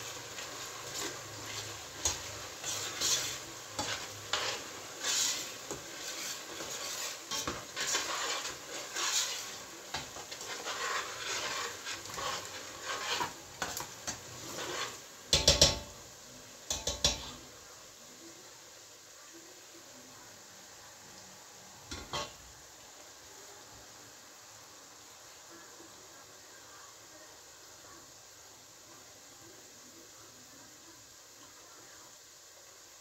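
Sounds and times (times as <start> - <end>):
food sizzling in oil: 0.0 - 33.0
spoon scraping a metal pot: 0.8 - 15.9, 21.9 - 22.4
metal spoon clanking on pot: 15.3 - 16.0, 16.7 - 17.4, 21.9 - 22.4.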